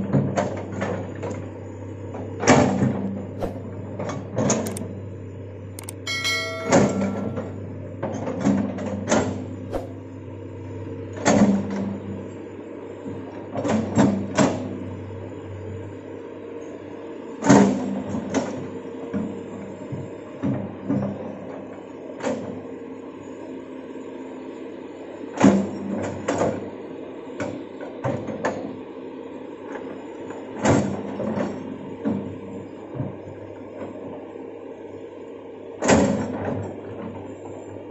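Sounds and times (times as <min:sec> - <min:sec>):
excavator diesel engine running: 0:00.0 - 0:16.2
metallic clanks from excavator bucket: 0:05.8 - 0:07.6.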